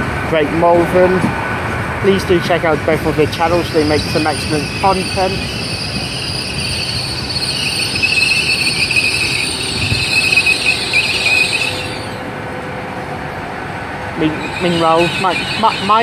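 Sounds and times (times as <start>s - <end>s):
train low rumble: 0.0s - 16.0s
train wheels squealing: 3.3s - 12.6s, 14.2s - 16.0s.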